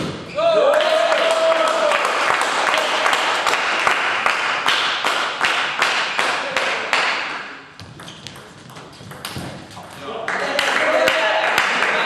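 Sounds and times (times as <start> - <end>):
spectators clapping: 0.6 - 7.2, 10.2 - 12.0.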